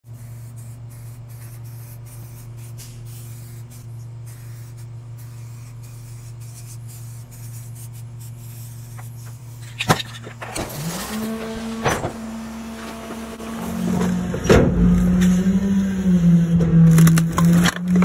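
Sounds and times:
spray paint can hissing: 0.0 - 9.9
steady low hum: 0.1 - 18.0.

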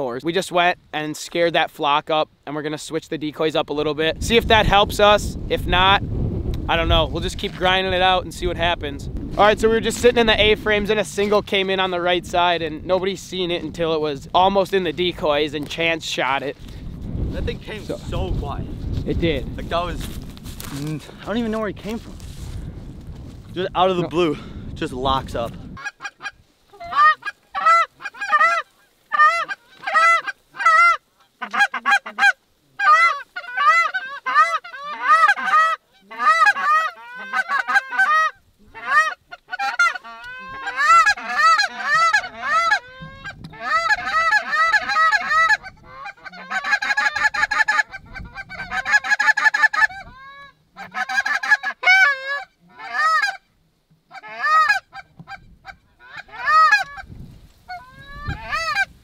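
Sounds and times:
geese honking in flight: 25.8 - 53.4, 54.1 - 57.1, 57.7 - 59.0.

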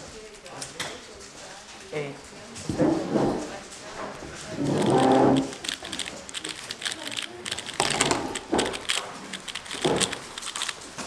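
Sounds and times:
puzzle cube clicking: 4.6 - 10.8.

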